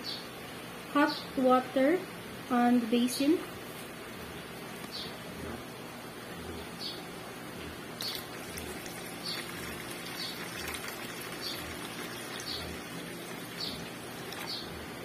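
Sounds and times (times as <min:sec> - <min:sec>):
water pouring into metal basin: 0:08.0 - 0:14.5.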